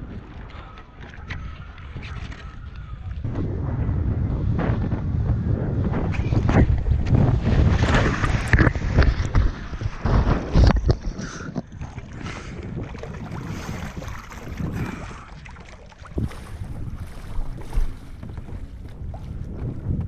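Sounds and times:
water sloshing and gurgling: 0.0s - 20.0s
wind buffeting microphone: 0.0s - 20.0s
water splashing hard: 6.2s - 19.7s.

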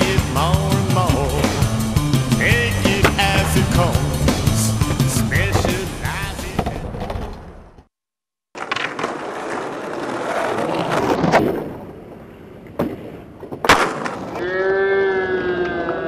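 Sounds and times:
skateboard wheels rolling on stone: 2.5s - 7.8s, 8.5s - 14.4s
skateboard landing clack: 8.6s - 10.1s, 12.7s - 14.4s
skateboard pop: 13.6s - 14.4s.

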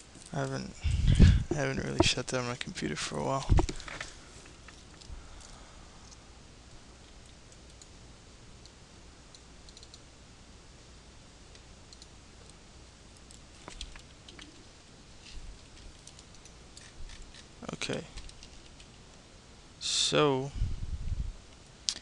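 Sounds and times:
microphone hiss: 0.0s - 22.0s
computer mouse clicks: 8.6s - 10.0s, 11.5s - 12.1s.

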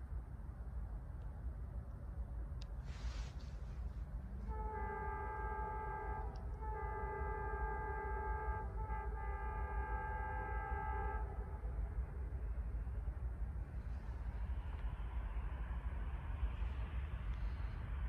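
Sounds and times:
steady low rumble: 0.0s - 18.0s
locomotive air horn blasts: 2.9s - 13.0s.

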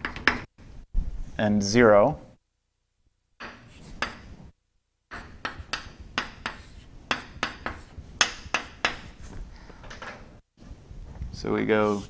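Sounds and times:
chalk tapping on chalkboard: 3.4s - 4.3s, 5.1s - 9.2s.

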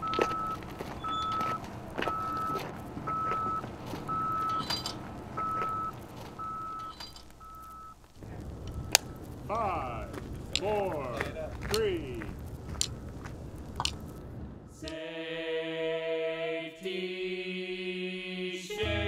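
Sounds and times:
vehicle backup alarm beeping: 0.0s - 9.3s.

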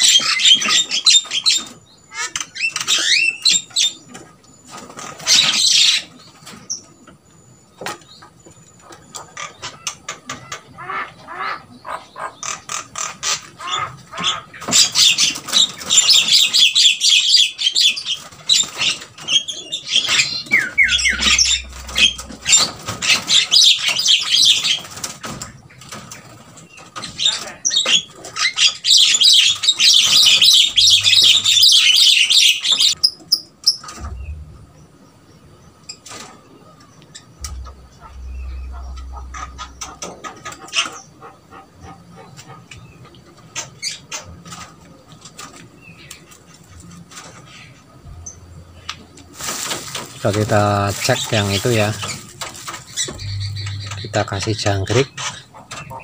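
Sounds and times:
birds calling in fast high notes: 8.9s - 25.3s, 27.2s - 35.3s, 37.2s - 42.5s, 50.0s - 56.0s.

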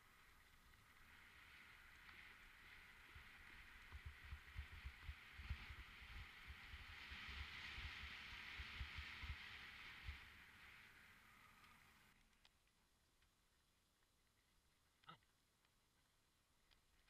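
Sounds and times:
hiss of rolling tyres and air: 0.0s - 12.2s.

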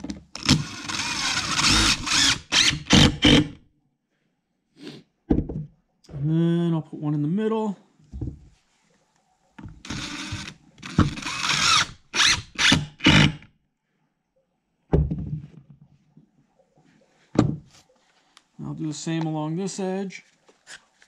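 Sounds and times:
cordless drill driving screw: 0.4s - 3.6s, 9.8s - 13.4s
knock: 5.3s - 5.7s, 17.4s - 17.7s.

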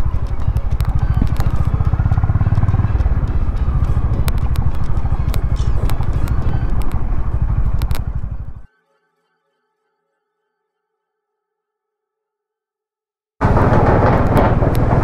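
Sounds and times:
sharp clicks: 0.0s - 8.6s
motorcycle engine running: 0.0s - 8.7s, 13.4s - 15.0s.

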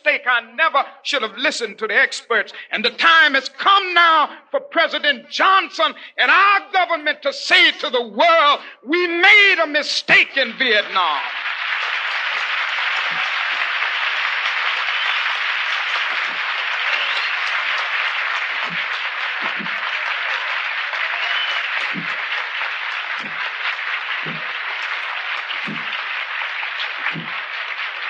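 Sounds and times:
audience applauding: 10.1s - 28.0s.

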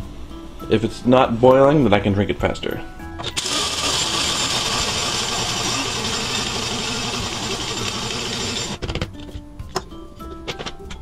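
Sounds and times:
coffee grinder grinding beans: 3.3s - 8.8s.

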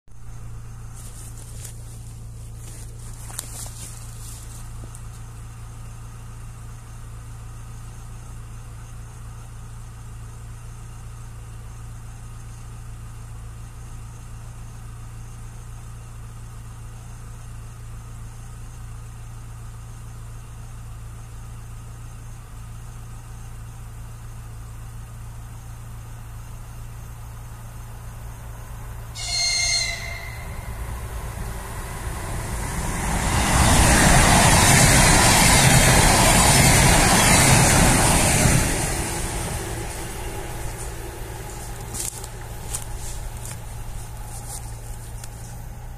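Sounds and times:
steady low hum: 22.4s - 45.9s
electric train horn blast: 29.1s - 43.5s.

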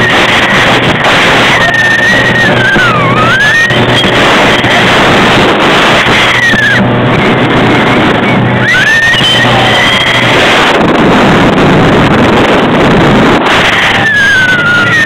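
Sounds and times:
motorboat engine running: 0.0s - 15.0s
rushing water: 0.0s - 15.0s
wind buffeting microphone: 0.0s - 15.0s.

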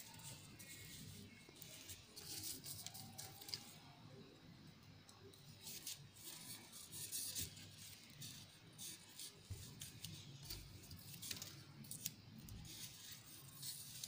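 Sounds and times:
paper crinkling and rustling: 0.0s - 3.9s, 5.6s - 14.0s.

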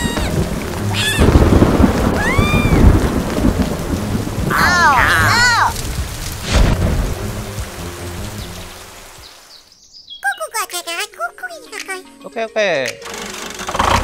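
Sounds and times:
high-pitched squeaky calls: 0.0s - 1.4s
low thunder rumble: 0.0s - 7.7s
steady rain: 0.0s - 9.8s.

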